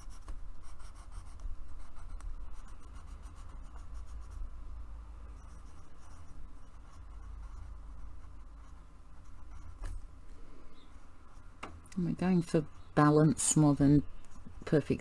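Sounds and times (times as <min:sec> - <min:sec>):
pencil scratching on paper: 0:00.0 - 0:04.4, 0:05.4 - 0:09.9.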